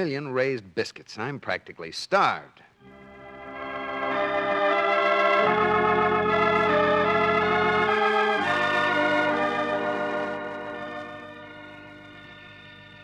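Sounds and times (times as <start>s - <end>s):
organ chords: 2.8s - 13.0s.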